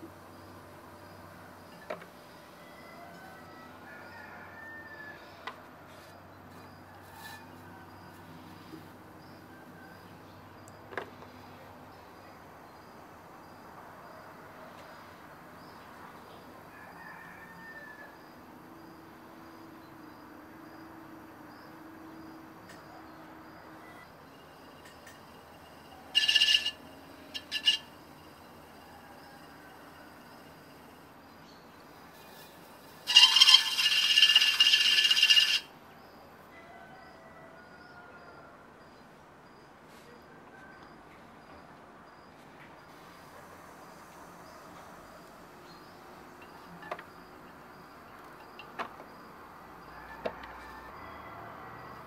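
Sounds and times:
high chirping: 26.1 - 28.0, 33.0 - 35.7.

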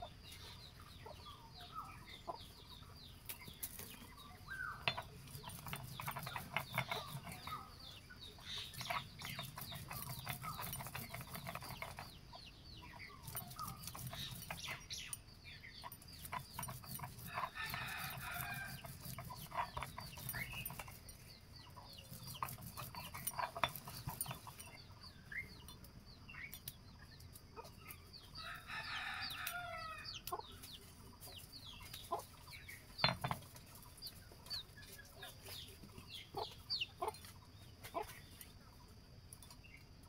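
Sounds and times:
chickens clucking: 0.0 - 25.8, 29.0 - 39.9
small birds chirping: 0.0 - 40.0
stone grinding on stone slab: 4.7 - 7.6, 8.5 - 12.2, 13.0 - 14.8, 15.8 - 21.1, 22.1 - 24.7.

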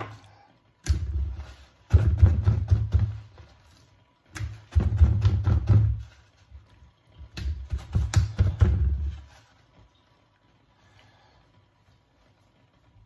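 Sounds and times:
hands patting meat with paper towel: 0.8 - 6.6, 7.2 - 9.9.

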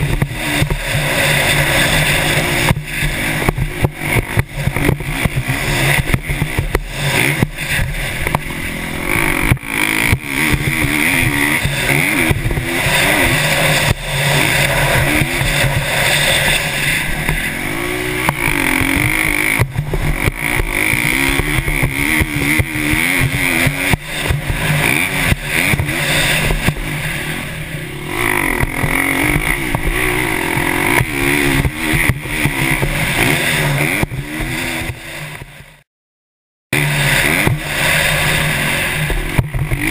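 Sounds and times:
motorcycle engine revving: 0.0 - 35.9, 36.7 - 39.9
wind noise on microphone: 18.0 - 22.6.

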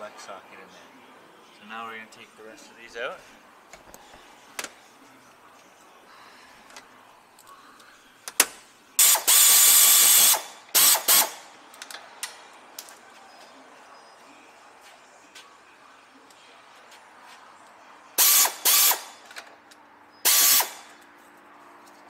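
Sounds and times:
air ratchet clicks: 8.3 - 12.4, 18.2 - 19.5, 20.2 - 21.1
air ratchet hissing: 9.0 - 11.4, 18.2 - 19.1, 20.2 - 20.9.

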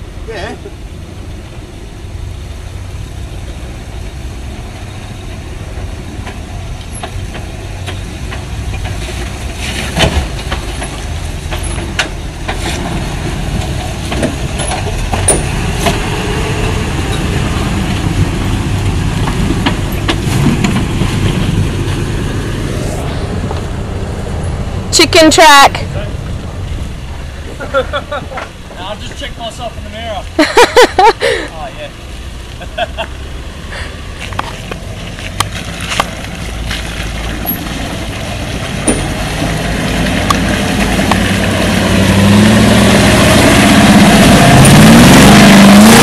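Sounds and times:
vehicle engine running low: 0.0 - 46.0.

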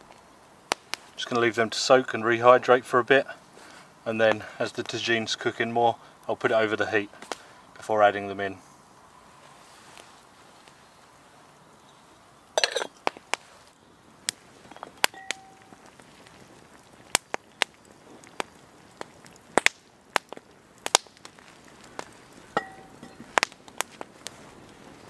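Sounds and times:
campfire crackling and popping: 0.0 - 25.0
metal lid clinking on pot: 12.6 - 13.0, 22.6 - 23.2.

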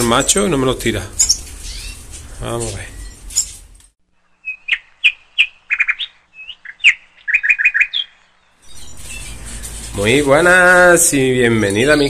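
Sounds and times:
small songbird chirping: 1.2 - 3.6, 4.2 - 10.8.

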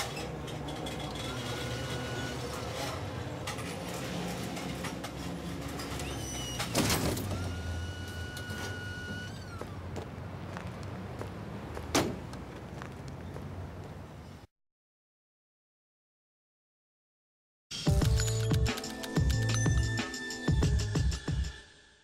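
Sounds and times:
hydraulic lift whine: 0.8 - 3.2, 5.9 - 9.8.

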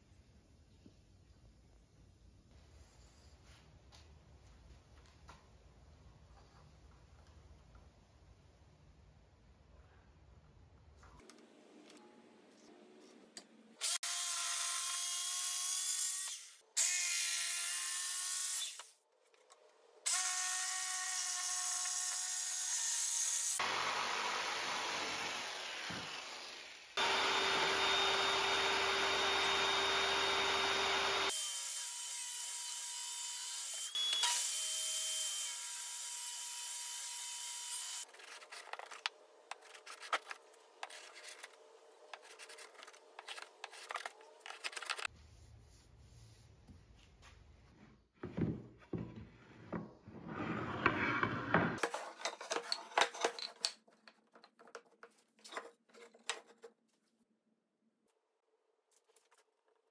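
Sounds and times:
power saw cutting wood: 20.1 - 38.0
hand plane scraping wood: 38.1 - 45.1.

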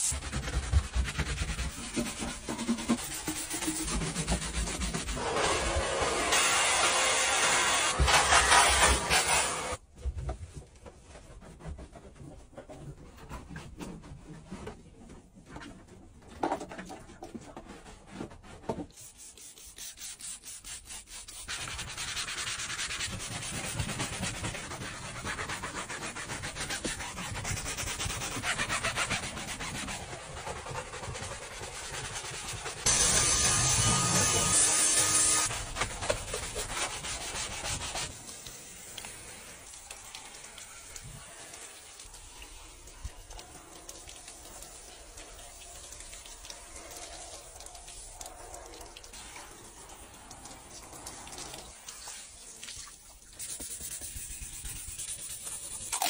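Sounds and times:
brush scrubbing fabric: 0.0 - 9.8, 17.6 - 34.3, 35.0 - 42.4, 53.2 - 56.0
steam cleaner hissing: 4.4 - 9.8.

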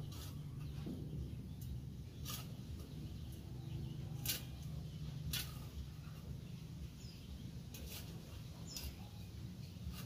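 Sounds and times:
blade cutting bamboo: 0.0 - 0.9, 1.6 - 6.3, 7.7 - 10.0.

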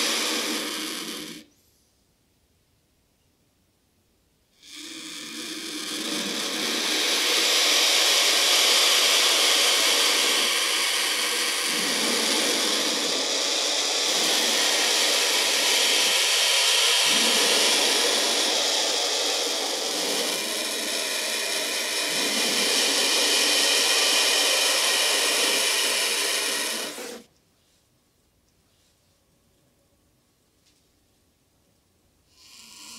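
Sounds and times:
vulture hissing: 0.0 - 1.5, 4.6 - 27.3, 32.3 - 32.9.

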